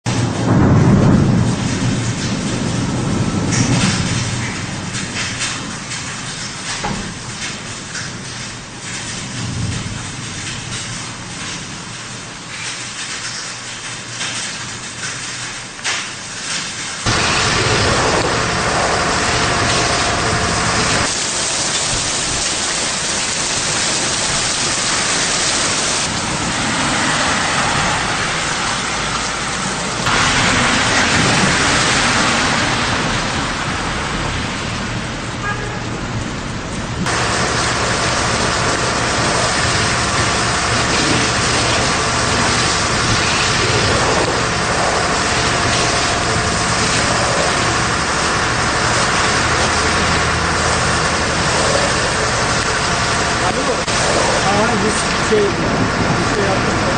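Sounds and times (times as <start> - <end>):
heavy rain and rushing water: 0.0 - 56.9
engine hum: 17.0 - 56.9.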